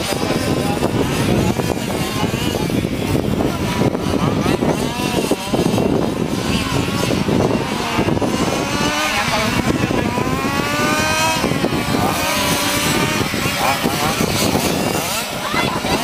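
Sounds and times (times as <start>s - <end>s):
rc car engines revving: 0.0s - 16.0s.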